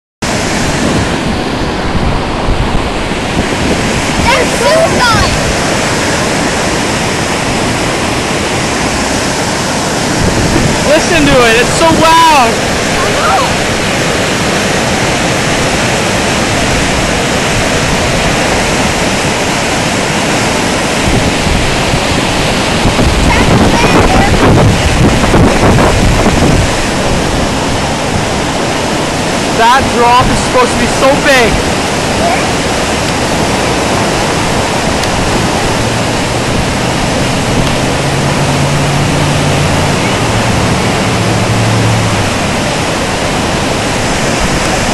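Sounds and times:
floodwater rushing through rapids: 0.2 - 44.9
low hum: 34.3 - 44.6.

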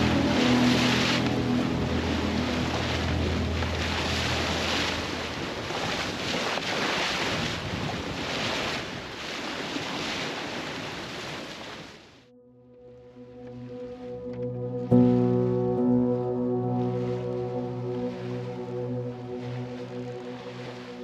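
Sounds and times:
wind rushing over microphone: 0.0 - 9.1
water washing along a hull: 0.0 - 12.2, 16.8 - 21.0.

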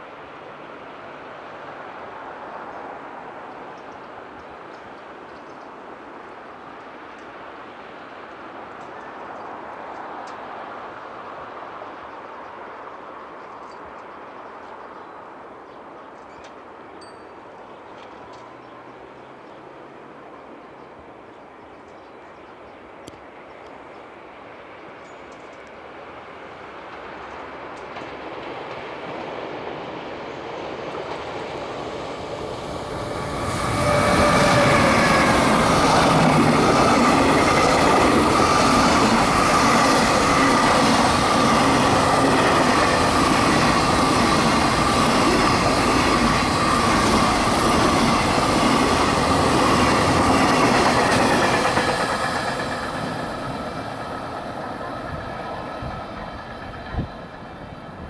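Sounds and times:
electric locomotive whine: 21.5 - 58.0.

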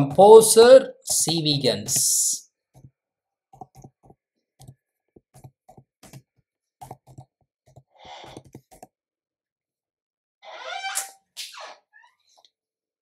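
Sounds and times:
keyboard typing: 3.6 - 8.9.

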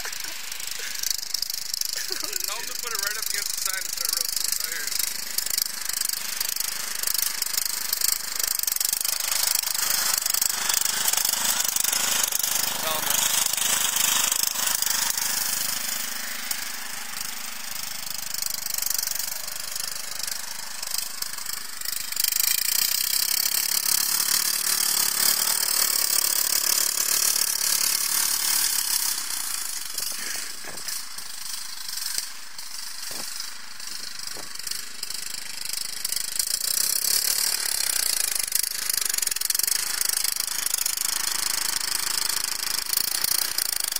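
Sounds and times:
riding lawn mower engine: 0.0 - 43.9.

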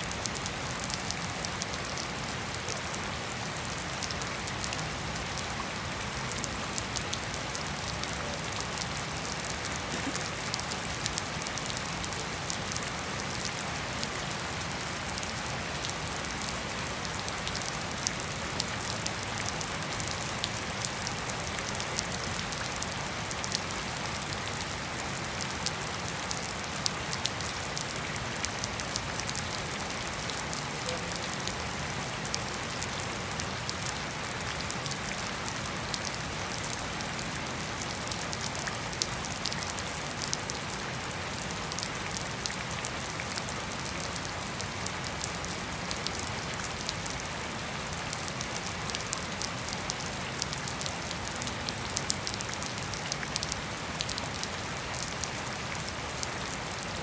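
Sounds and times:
steady rain on grass: 0.0 - 57.0.

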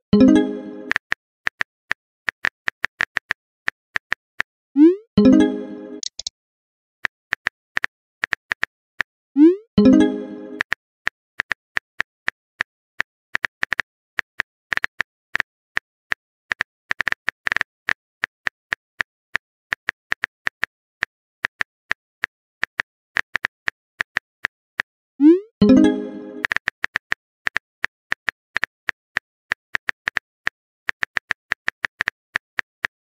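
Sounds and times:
phone keyboard tap clicks: 6.0 - 6.3.

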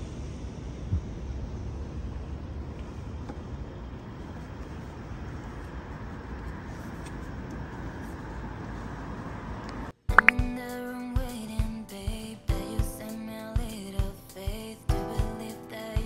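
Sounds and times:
road traffic hum: 0.0 - 10.0.

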